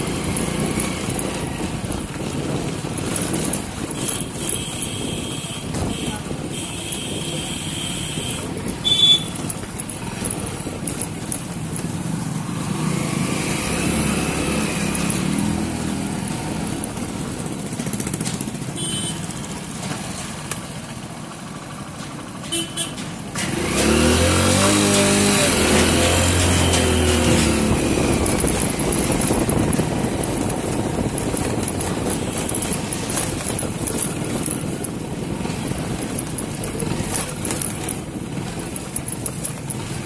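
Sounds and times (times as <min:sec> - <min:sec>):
motorcycle engine on dirt lane: 0:00.0 - 0:40.0.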